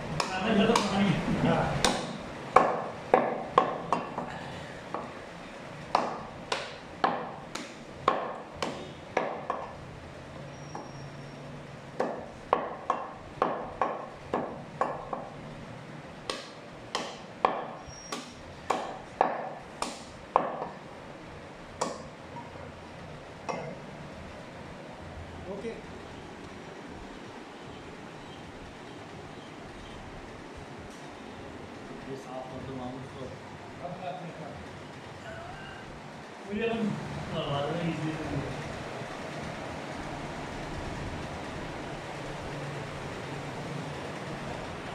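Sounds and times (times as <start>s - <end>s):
cleaver chopping on wooden block: 1.8s - 4.3s, 5.9s - 9.7s, 12.0s - 15.3s, 16.3s - 20.8s, 21.8s - 22.1s.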